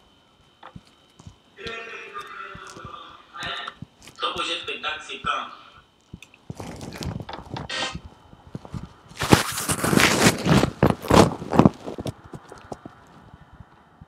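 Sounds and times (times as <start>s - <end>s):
rustling handling noise: 6.0s - 13.4s.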